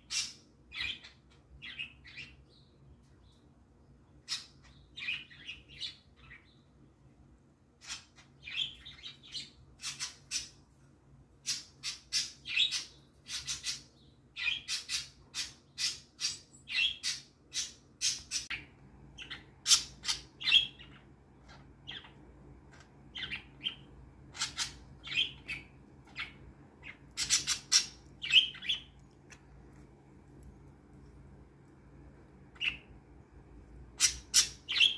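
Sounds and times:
budgerigars chirping: 0:11.5 - 0:22.2, 0:23.1 - 0:29.0, 0:32.6 - 0:32.9, 0:34.0 - 0:34.9.

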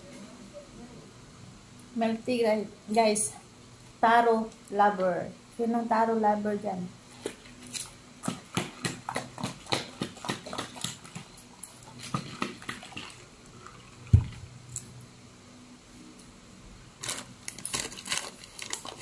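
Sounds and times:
ice sloshing in shaken cup: 0:08.3 - 0:14.4.

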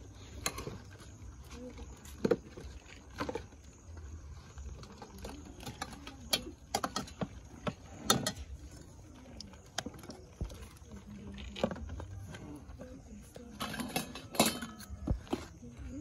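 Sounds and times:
faint voices: 0:00.0 - 0:16.0
plastic bowls and plates clattering: 0:04.7 - 0:08.8, 0:09.6 - 0:15.6.

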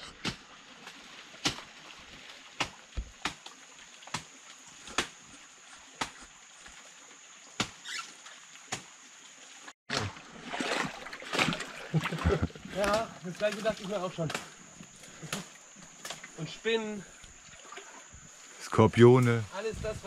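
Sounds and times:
steady high-pitched hiss: 0:12.4 - 0:20.0.

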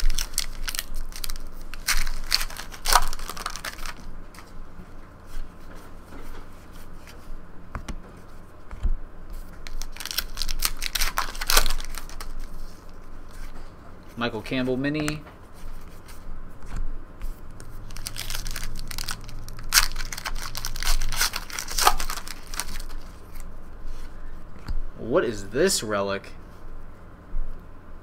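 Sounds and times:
wrapper tearing and crinkling: 0:00.0 - 0:04.1, 0:09.6 - 0:13.0, 0:17.8 - 0:23.5
cards being handled: 0:00.0 - 0:04.6, 0:05.3 - 0:24.8.

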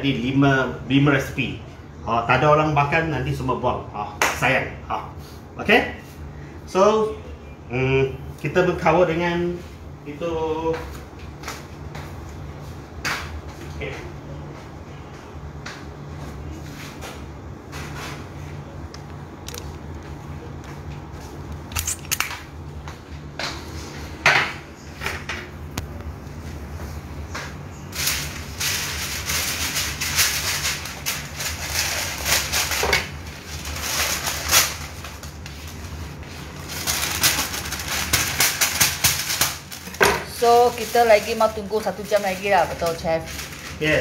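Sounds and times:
baking paper crinkling: 0:27.6 - 0:44.0.

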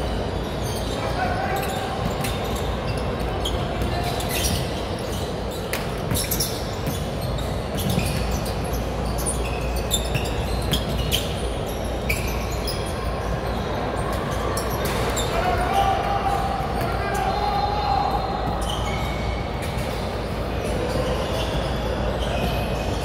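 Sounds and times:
sneakers squeaking: 0:00.0 - 0:23.0.

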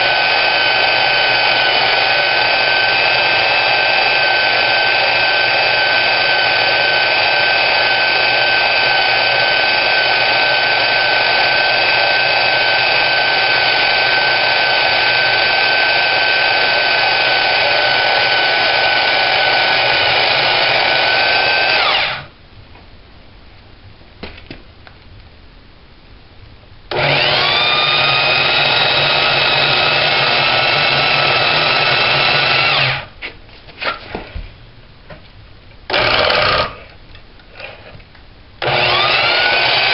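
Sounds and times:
band saw cutting steel: 0:00.0 - 0:22.3, 0:26.9 - 0:33.1, 0:38.6 - 0:39.9.

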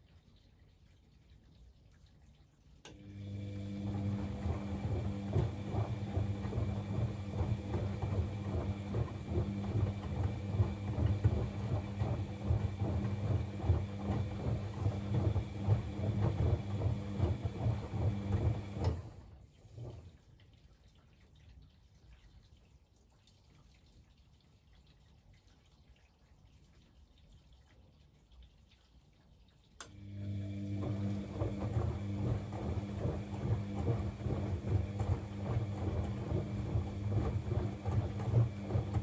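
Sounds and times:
washing machine motor hum: 0:02.9 - 0:20.2, 0:29.8 - 0:39.0
wet laundry sloshing and slapping: 0:03.1 - 0:20.2, 0:30.1 - 0:39.0.

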